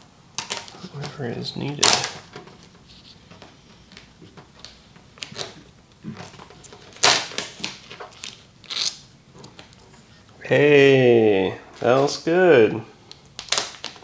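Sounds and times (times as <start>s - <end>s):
vinyl scraping and rustling: 0.4s - 10.5s.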